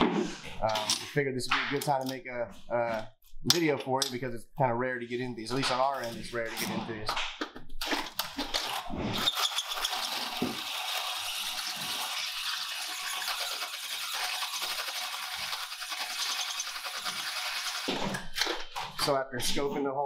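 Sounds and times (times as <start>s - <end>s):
drill scraping whir: 8.2s - 19.0s.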